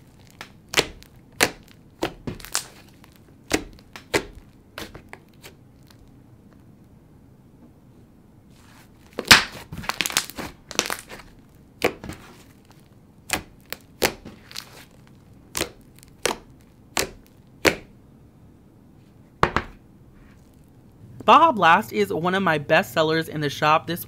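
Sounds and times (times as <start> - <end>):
slime sticky pops and crackles: 0.0 - 6.1, 9.2 - 17.9.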